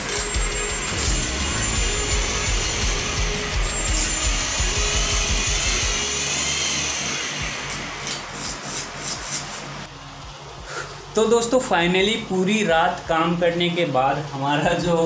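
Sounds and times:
small electric motors whirring: 0:00.0 - 0:09.9.

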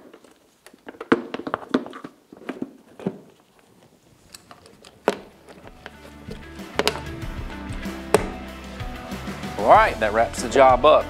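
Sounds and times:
plastic cowling knocks and clatters: 0:00.0 - 0:03.9.

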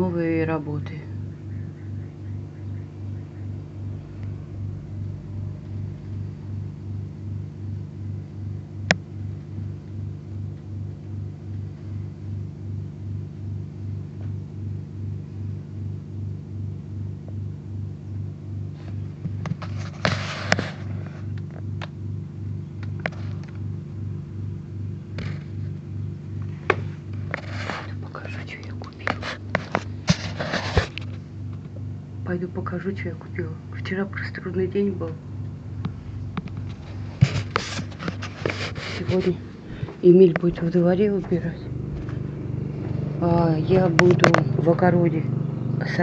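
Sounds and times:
refrigerator humming: 0:00.0 - 0:46.0.

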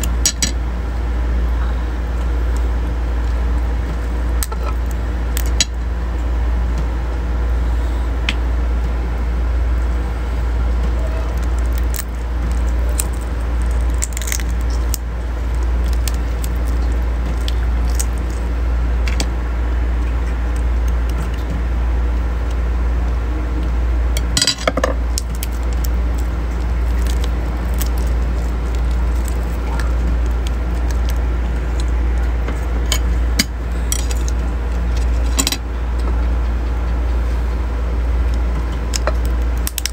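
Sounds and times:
steady low hum: 0:00.0 - 0:39.9
crab shells cracking: 0:04.3 - 0:05.8, 0:10.8 - 0:19.3, 0:24.2 - 0:35.4, 0:38.3 - 0:39.9.

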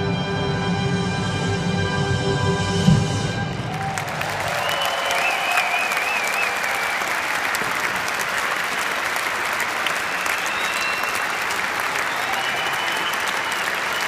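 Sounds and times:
crowd clapping: 0:03.5 - 0:14.0.

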